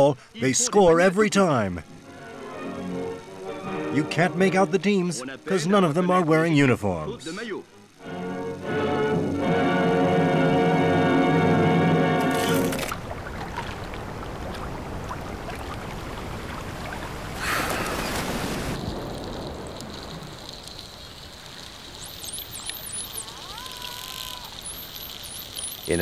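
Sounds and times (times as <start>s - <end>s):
water rushing: 12.1s - 26.0s
dolphins whistling underwater: 16.9s - 26.0s.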